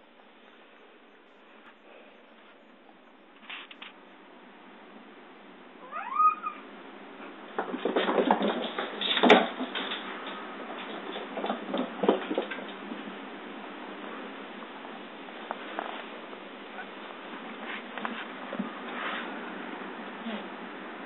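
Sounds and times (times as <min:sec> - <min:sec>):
cat meowing: 0:05.8 - 0:06.7.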